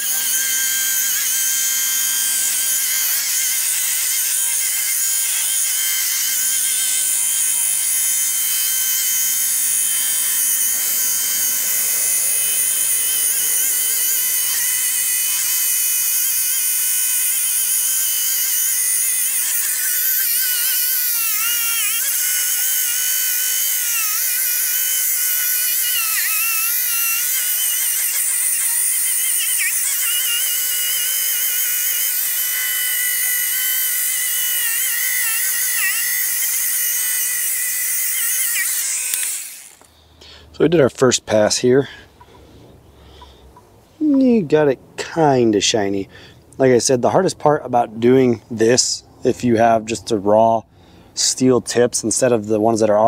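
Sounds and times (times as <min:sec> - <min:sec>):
rotary polisher whining: 0:00.0 - 0:40.0.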